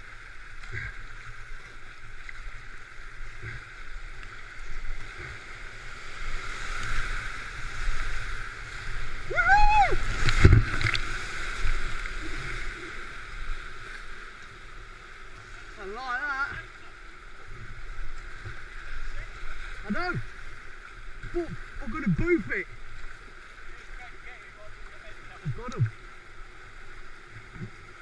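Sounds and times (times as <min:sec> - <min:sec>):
paddle strokes splashing: 0:00.0 - 0:28.0
rushing river whitewater: 0:00.0 - 0:28.0
person whooping yell: 0:09.2 - 0:10.1
loud splash and thump: 0:10.2 - 0:11.0.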